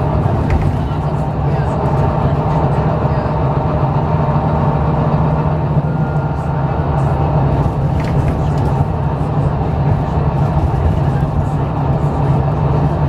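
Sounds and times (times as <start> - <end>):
bus diesel engine hum: 0.0 - 13.0
road and tyre noise: 0.0 - 13.0.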